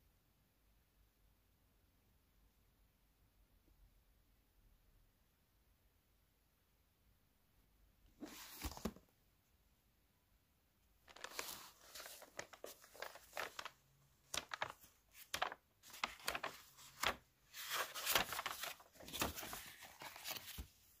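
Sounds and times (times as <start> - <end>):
pages flipping: 8.2 - 9.1, 11.0 - 21.0.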